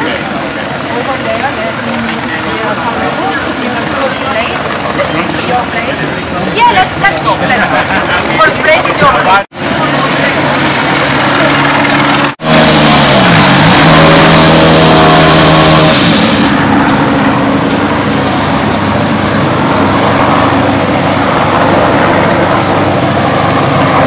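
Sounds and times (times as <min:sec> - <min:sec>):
rally car engine running: 0:11.8 - 0:21.0.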